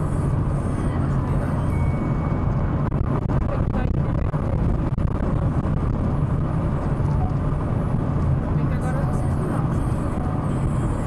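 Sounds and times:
car cabin road and engine noise: 0:00.0 - 0:11.0.

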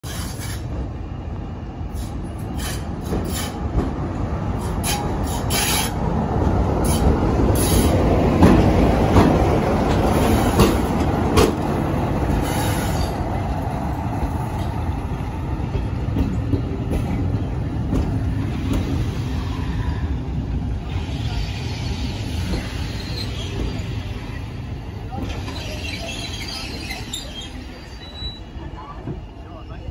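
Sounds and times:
diesel locomotive engine: 0:00.0 - 0:29.9
high wheel squeals: 0:21.4 - 0:24.2, 0:25.4 - 0:28.7.

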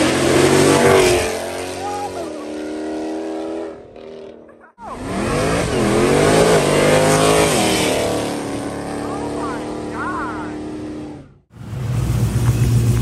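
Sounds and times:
car engine revving hard in burnout: 0:00.0 - 0:03.8, 0:04.8 - 0:13.0
car engine holding steady note: 0:08.1 - 0:13.0.

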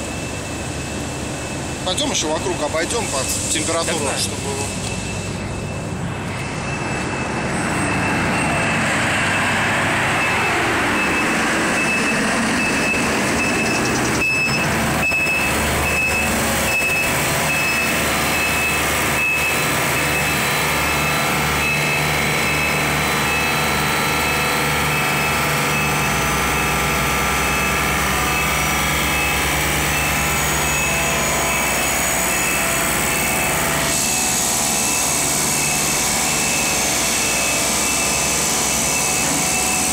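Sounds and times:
refrigeration unit running: 0:09.9 - 0:39.9.

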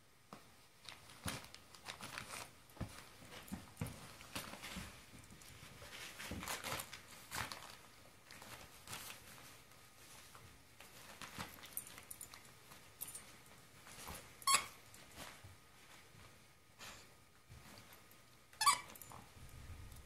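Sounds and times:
plastic wrapping crinkling and tearing: 0:00.8 - 0:02.6, 0:06.2 - 0:09.3.

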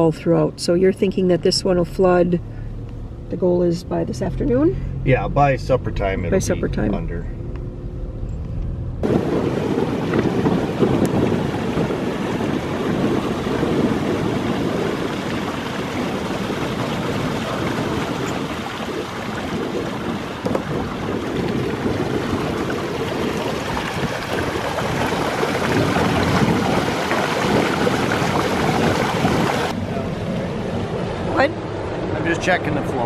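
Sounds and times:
wind buffeting microphone: 0:07.4 - 0:32.8.

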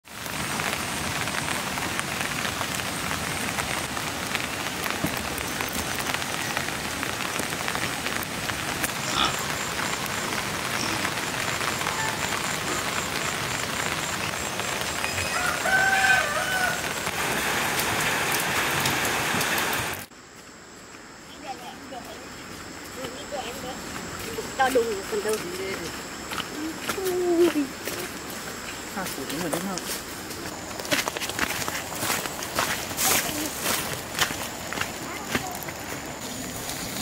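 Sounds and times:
rain falling: 0:00.0 - 0:20.1, 0:21.0 - 0:37.0
rooster crowing: 0:15.1 - 0:17.1.

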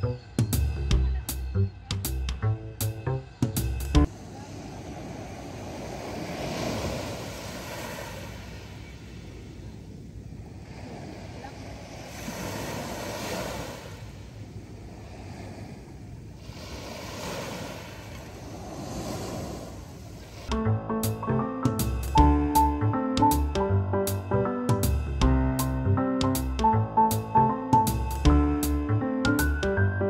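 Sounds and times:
waves breaking on shore: 0:04.0 - 0:20.5.

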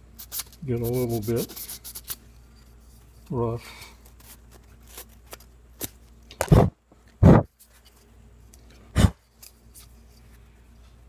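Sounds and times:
sanding block scratching: 0:00.2 - 0:02.2.

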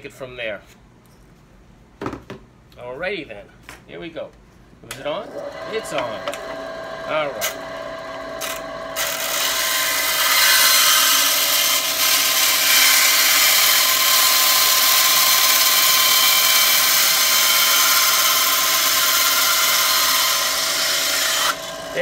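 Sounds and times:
band saw cutting plastic pipe: 0:05.0 - 0:22.0.

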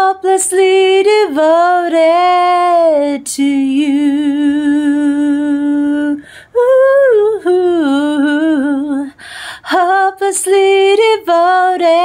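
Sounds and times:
woman breathing in: 0:06.2 - 0:06.6, 0:09.1 - 0:09.7.

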